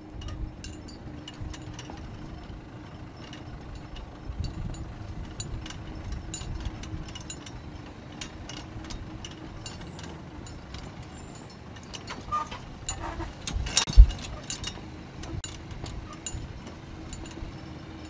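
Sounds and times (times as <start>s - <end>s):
engine running: 0.0s - 18.0s
metallic clicks and ticks: 3.2s - 16.4s.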